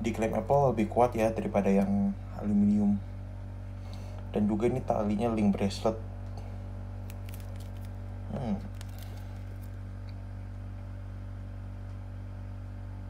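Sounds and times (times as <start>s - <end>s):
low steady hum: 0.0s - 13.0s
murmured voice: 8.3s - 8.7s.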